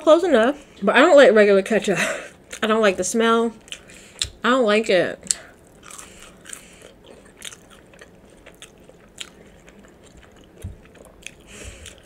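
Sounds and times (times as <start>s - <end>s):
chewing food with mouth closed: 5.3s - 12.0s.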